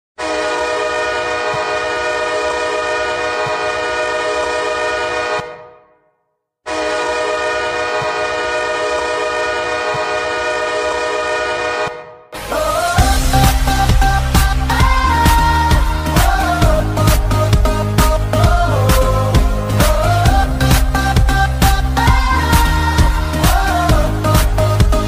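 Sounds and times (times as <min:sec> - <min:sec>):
hockey goal horn blasts: 0:00.2 - 0:06.0, 0:06.7 - 0:12.2.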